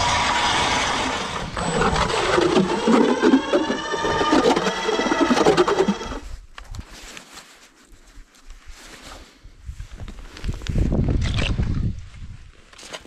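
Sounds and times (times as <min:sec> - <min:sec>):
electric ice auger drilling: 0:00.0 - 0:06.3.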